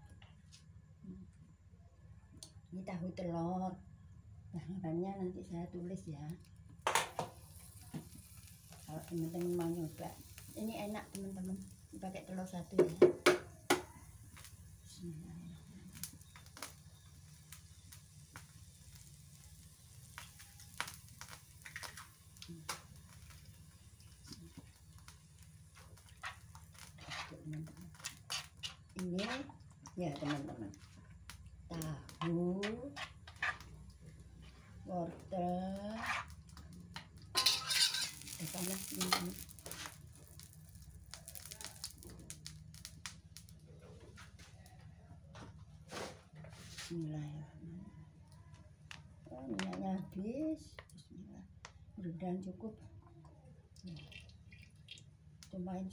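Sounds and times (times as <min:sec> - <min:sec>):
faint sizzling in a wok: 0:02.4 - 0:45.0
sharp crackles and pops: 0:05.4 - 0:44.9, 0:53.7 - 0:55.9
metal spatula scraping in wok: 0:26.1 - 0:30.6, 0:32.2 - 0:33.8, 0:35.9 - 0:36.4, 0:37.3 - 0:40.0.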